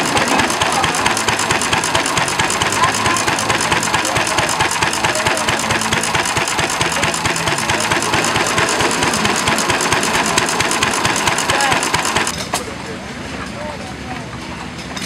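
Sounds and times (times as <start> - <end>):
stationary engine knocking: 0.0 - 12.4.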